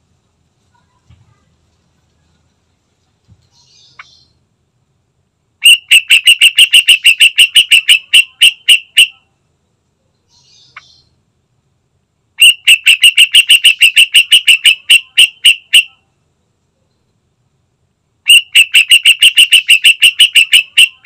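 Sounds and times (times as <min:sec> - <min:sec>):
bird chattering calls: 0:05.6 - 0:09.2, 0:12.4 - 0:16.0, 0:18.3 - 0:21.0.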